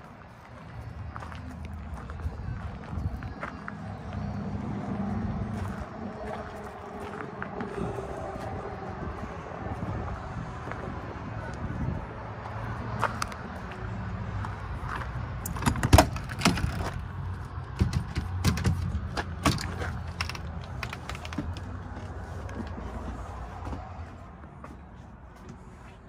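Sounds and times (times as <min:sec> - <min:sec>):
steady low rumble: 0:00.0 - 0:15.4
door clicks knocks and creaks: 0:17.7 - 0:21.8.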